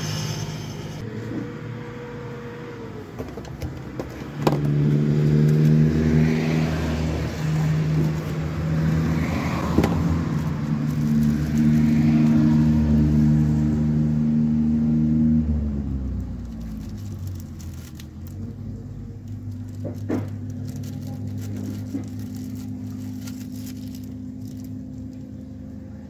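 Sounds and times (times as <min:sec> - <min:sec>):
engine running steadily: 0:00.0 - 0:26.0
plastic bag crinkling: 0:09.2 - 0:12.6, 0:16.3 - 0:25.4.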